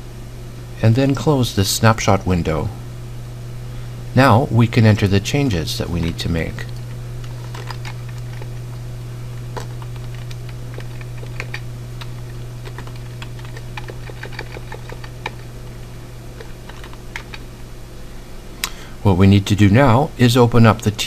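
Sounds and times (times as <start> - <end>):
steady low hum: 0.0 - 21.0
keyboard typing: 5.9 - 8.6, 9.5 - 15.5, 16.3 - 17.5.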